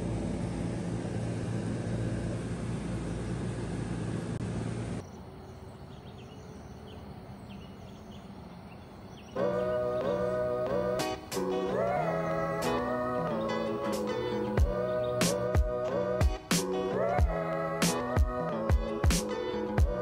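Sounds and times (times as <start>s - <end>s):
low drone hum: 0.0s - 20.0s
bird chirps: 5.0s - 10.5s
acoustic guitar music: 9.4s - 17.3s.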